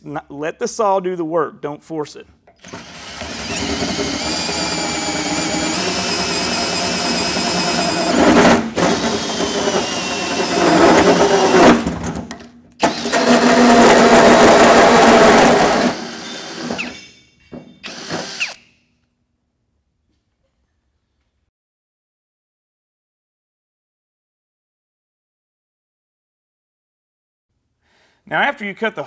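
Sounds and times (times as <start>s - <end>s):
drill with hole saw cutting metal: 2.6s - 12.0s, 12.8s - 17.1s, 17.8s - 18.7s.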